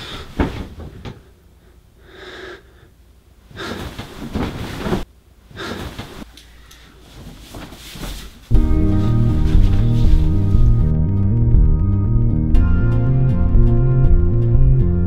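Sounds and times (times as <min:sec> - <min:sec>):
man breathing hard: 0:00.0 - 0:04.2
duvet rustling: 0:03.5 - 0:10.9.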